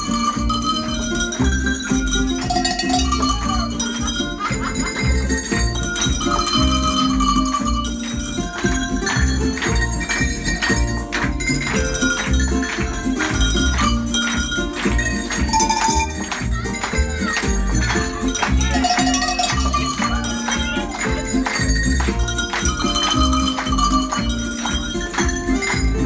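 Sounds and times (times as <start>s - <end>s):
audience clapping along: 0.0s - 26.0s
music with a steady beat: 0.0s - 26.0s
tuned cowbells rung by hand: 0.0s - 26.0s.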